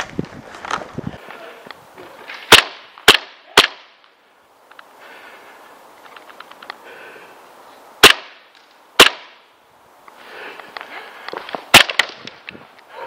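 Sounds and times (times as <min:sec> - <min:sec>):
airsoft pistol shots: 0:02.5 - 0:03.9, 0:08.0 - 0:08.4, 0:09.0 - 0:09.4.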